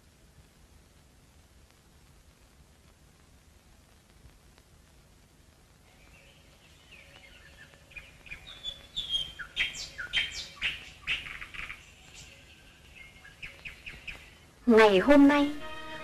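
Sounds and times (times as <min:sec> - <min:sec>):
birds chirping: 0:05.9 - 0:16.0.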